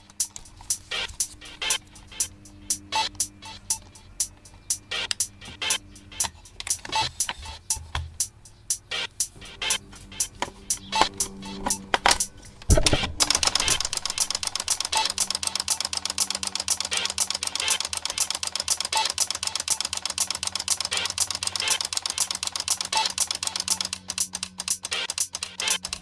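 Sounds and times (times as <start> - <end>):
low motor hum: 9.4 - 17.7.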